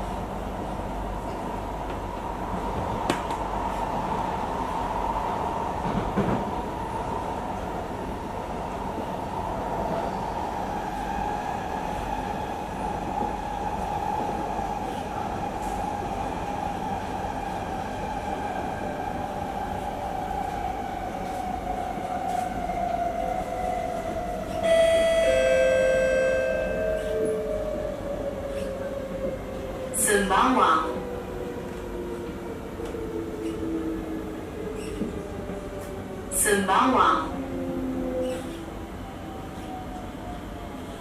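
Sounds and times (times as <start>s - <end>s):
train carriage rumble: 0.0s - 41.0s
electronic chime: 24.7s - 26.9s.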